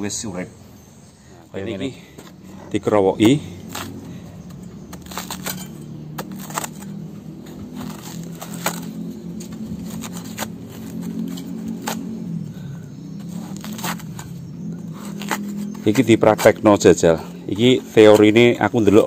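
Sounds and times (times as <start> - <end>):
steady low hum: 0.0 - 19.0
machete cutting banana stem: 3.2 - 12.2, 13.2 - 16.8.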